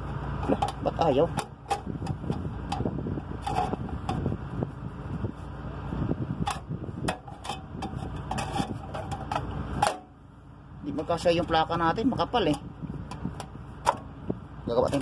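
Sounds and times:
metal plate scraping and clicking: 0.0s - 4.4s, 6.4s - 10.1s
steady low rumble: 0.0s - 15.0s.

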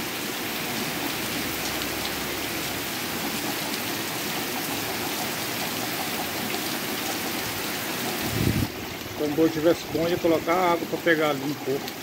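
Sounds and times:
heavy rain hissing: 0.0s - 12.0s
raindrop ticks: 8.9s - 12.0s.

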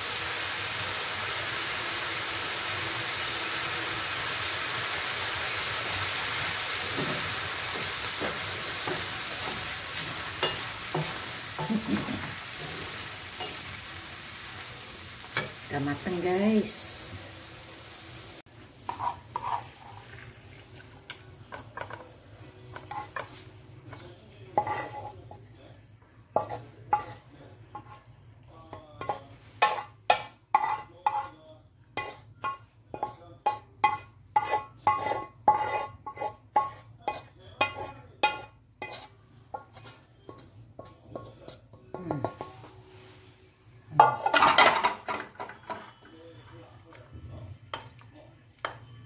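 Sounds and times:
wooden spatula scraping frying pan: 18.8s - 20.1s, 32.0s - 32.3s, 33.0s - 40.5s.

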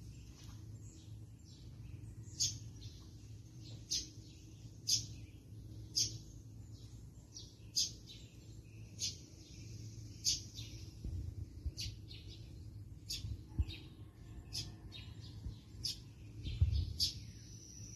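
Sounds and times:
bird chirping: 0.0s - 17.9s
steady low rumble: 0.0s - 17.9s.

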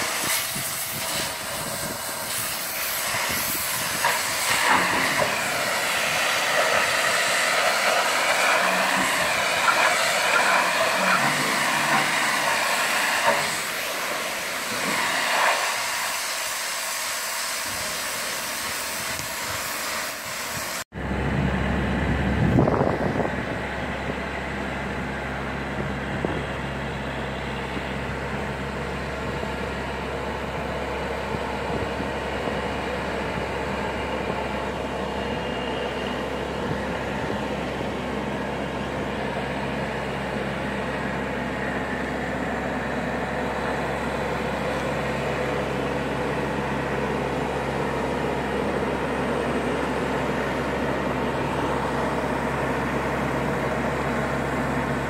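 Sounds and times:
pressure washer spraying: 0.0s - 20.8s
hoist engine humming: 0.0s - 55.0s.

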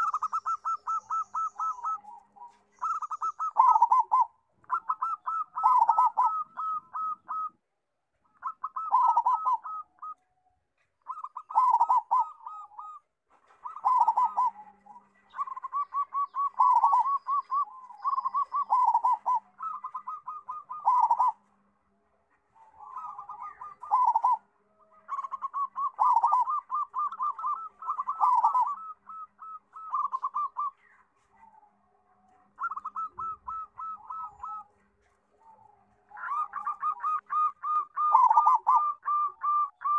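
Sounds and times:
dove cooing: 0.0s - 7.6s, 8.2s - 21.7s, 22.3s - 39.9s.

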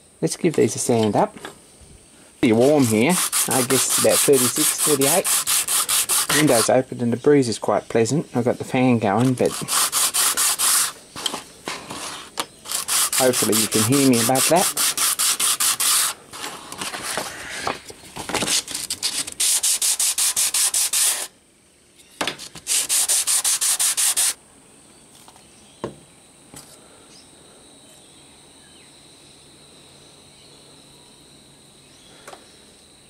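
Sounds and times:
wood rubbing on sandpaper: 2.4s - 6.8s, 9.1s - 17.8s, 18.4s - 21.3s, 22.6s - 24.4s
faint high-pitched hum: 24.4s - 33.0s.

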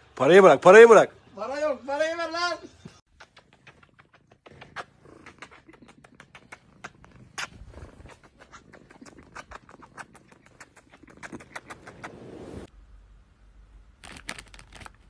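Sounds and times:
cat purring: 3.2s - 12.7s.

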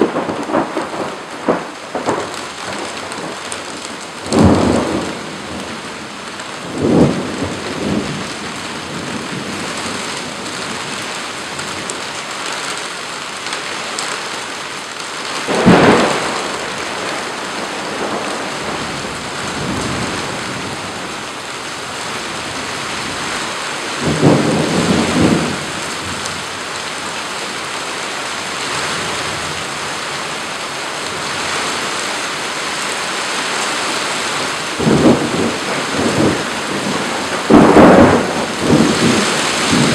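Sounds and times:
thunder claps: 0.0s - 5.7s, 6.6s - 11.9s, 15.4s - 21.4s, 23.9s - 26.6s, 34.4s - 39.9s
heavy rain: 0.0s - 39.9s.

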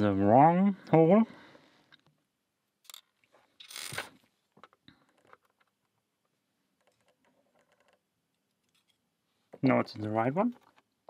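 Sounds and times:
tweezers clicking and scraping metal: 6.8s - 9.0s.

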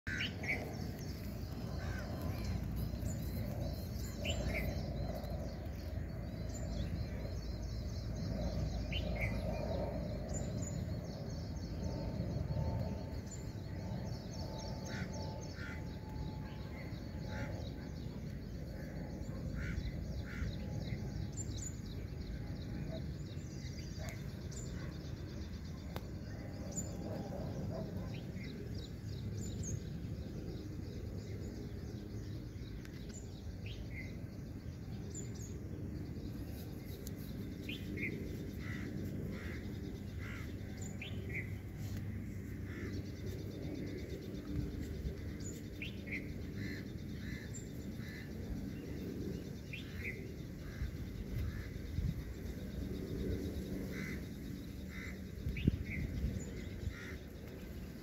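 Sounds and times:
birds calling: 0.1s - 12.1s, 36.2s - 58.0s
steady low rumble: 0.1s - 58.0s.

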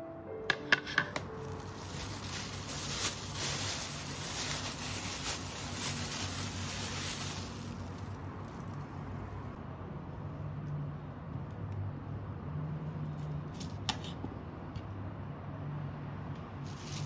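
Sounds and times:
plastic bag crinkling: 1.3s - 9.0s, 16.7s - 17.0s.

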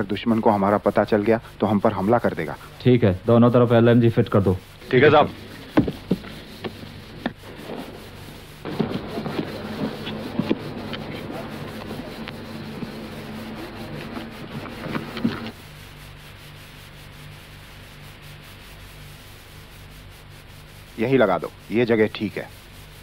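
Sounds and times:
low steady hum: 0.0s - 23.0s
footsteps through grass and undergrowth: 3.6s - 16.3s
knocks: 5.7s - 7.4s.

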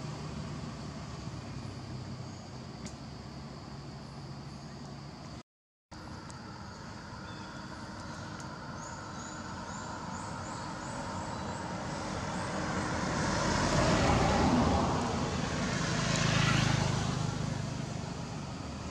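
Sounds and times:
car driving past: 7.0s - 18.9s.

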